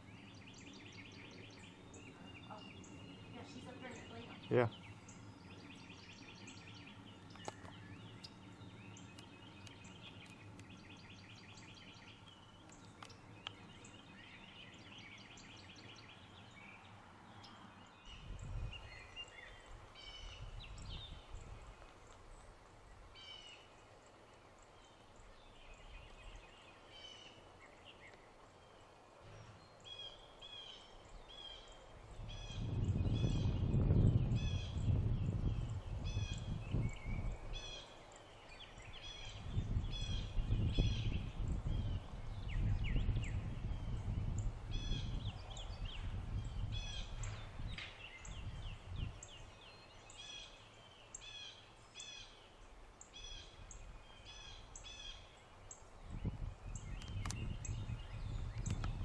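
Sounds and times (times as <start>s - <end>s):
birds chirping and trilling: 0.0s - 59.0s
low microphone rumble: 17.8s - 21.9s, 31.9s - 37.8s, 38.6s - 49.9s, 56.0s - 59.0s.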